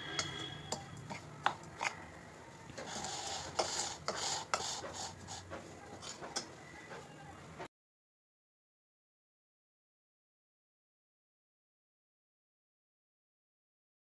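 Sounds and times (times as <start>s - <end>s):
spoon scraping spice powder: 0.0s - 7.1s.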